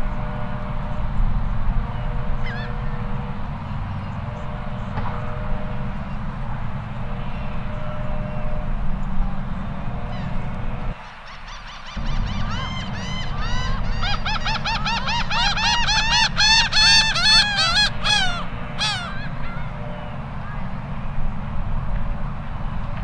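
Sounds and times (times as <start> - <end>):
gulls laughing calls: 2.0 - 4.8, 10.0 - 20.8.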